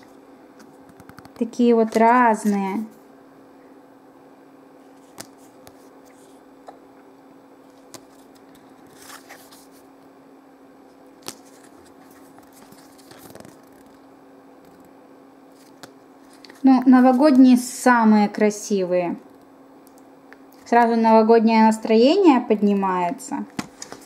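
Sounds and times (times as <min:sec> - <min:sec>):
faint steady hum: 0:00.0 - 0:24.0
picture cards clicking and rustling: 0:00.6 - 0:02.8, 0:05.0 - 0:06.4, 0:07.6 - 0:09.9, 0:11.2 - 0:14.0, 0:15.5 - 0:17.4, 0:23.5 - 0:24.0.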